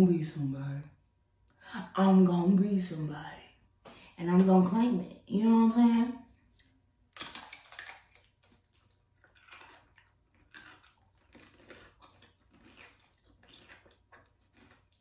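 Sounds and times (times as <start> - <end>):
person chewing: 6.4 - 15.0.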